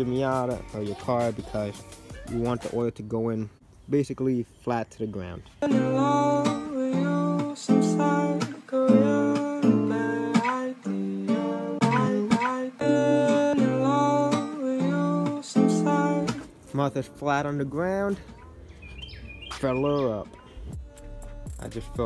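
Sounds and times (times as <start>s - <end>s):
acoustic guitar plucked chords: 5.6s - 18.4s.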